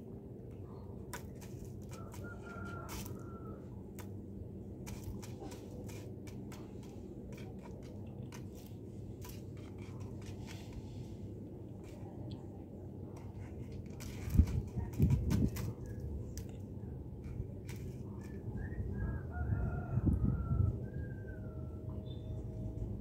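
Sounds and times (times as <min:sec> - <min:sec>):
low hum: 0:00.0 - 0:23.0
claws scratching on wood: 0:01.0 - 0:12.3, 0:13.1 - 0:16.6, 0:17.2 - 0:18.4.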